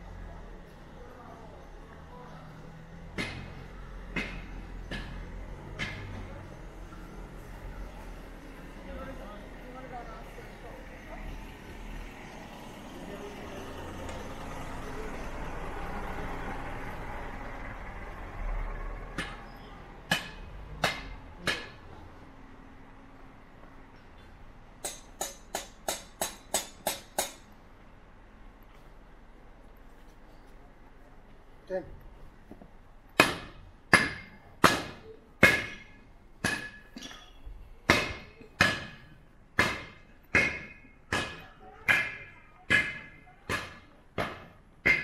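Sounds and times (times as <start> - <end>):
low vehicle rumble: 0.0 - 25.2.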